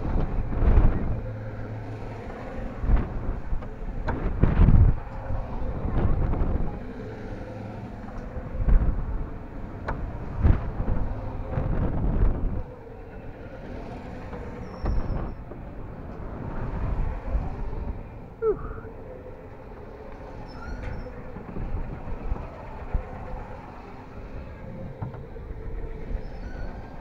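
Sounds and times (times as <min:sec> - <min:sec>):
wind rumbling on microphone: 0:00.0 - 0:27.0
short falling squeak: 0:20.4 - 0:21.1.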